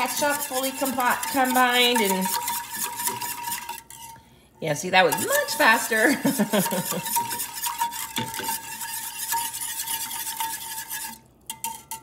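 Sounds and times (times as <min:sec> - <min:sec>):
whisk beating in metal saucepan: 0:00.0 - 0:04.2, 0:04.8 - 0:12.0.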